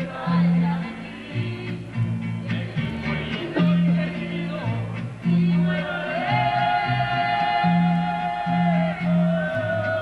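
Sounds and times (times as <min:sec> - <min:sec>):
person singing into microphone: 0:00.0 - 0:01.9, 0:02.5 - 0:10.0
bass line: 0:00.0 - 0:10.0
live latin band music: 0:00.0 - 0:10.0.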